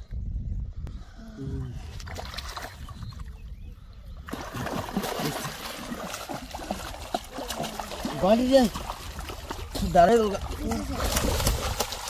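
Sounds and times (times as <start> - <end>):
river water splashing: 4.3 - 12.0.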